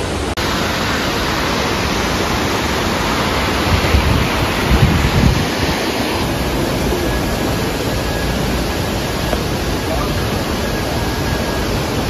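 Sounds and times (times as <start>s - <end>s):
waterfall roaring: 0.0s - 12.0s
wind buffeting microphone: 2.9s - 12.0s.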